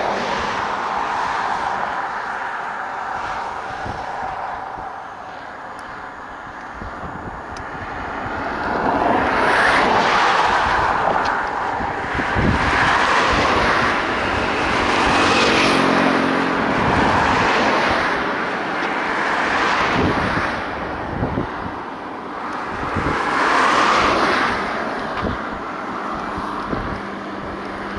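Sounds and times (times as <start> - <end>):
train wheels rumbling on rail: 6.8 - 21.8.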